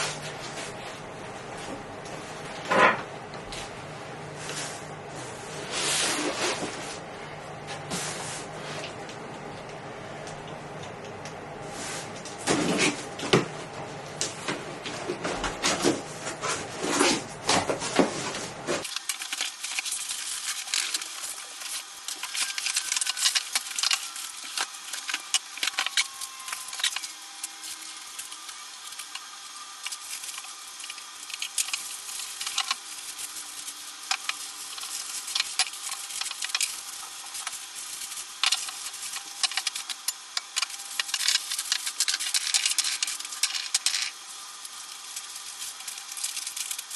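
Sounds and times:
plastic bags crinkling: 18.8 - 46.9.

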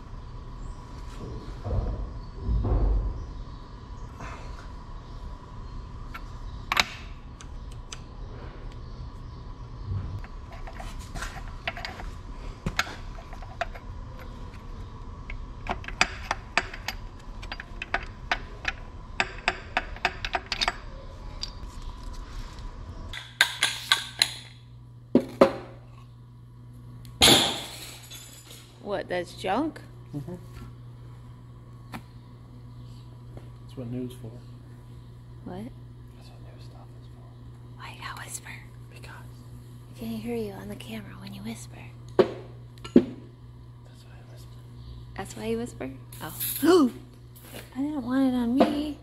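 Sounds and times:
steady low hum: 0.0 - 49.0
metal tools clinking: 27.3 - 28.7.

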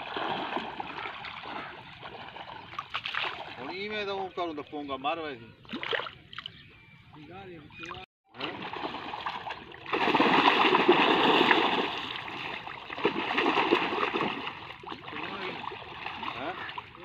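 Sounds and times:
splashing of muddy water: 0.0 - 3.7, 8.3 - 17.0.

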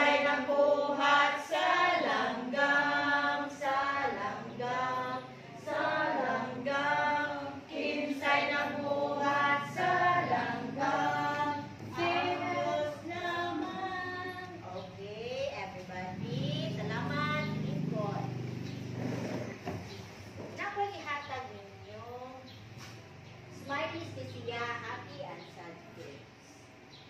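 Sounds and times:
children singing together: 0.0 - 14.6
woman singing: 0.0 - 14.8.

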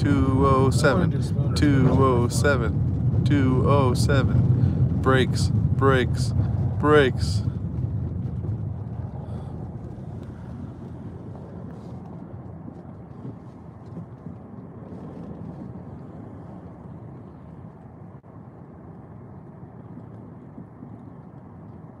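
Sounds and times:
car engine and tyres rumbling: 0.0 - 22.0.

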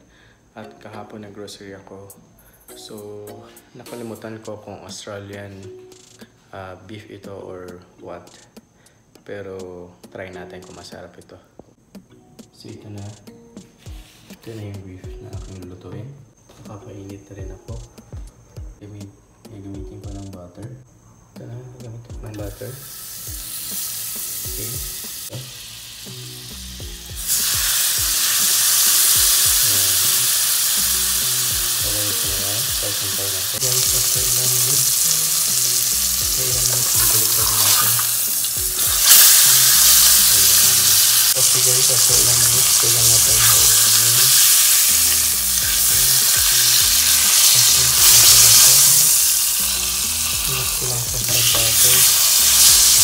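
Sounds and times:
soft background music: 0.0 - 53.0
steak sizzling in a pan: 22.5 - 53.0.

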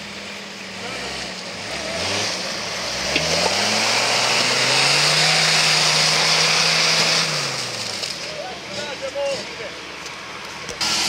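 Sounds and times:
off-road vehicle engine revving: 0.0 - 11.0.

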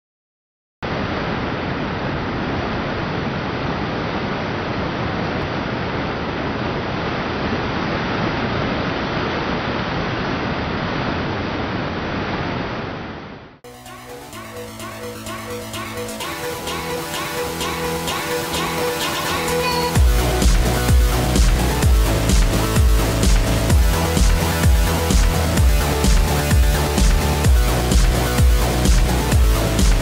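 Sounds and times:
electronic music: 13.6 - 30.0.

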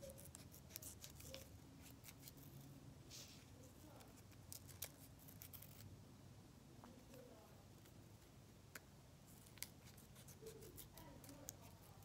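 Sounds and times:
scissors snipping paper: 0.0 - 2.5, 3.9 - 5.9, 9.3 - 12.0.

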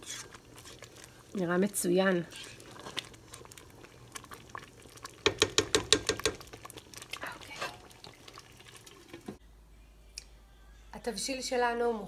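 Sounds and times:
stew simmering in a pot: 0.0 - 9.4.

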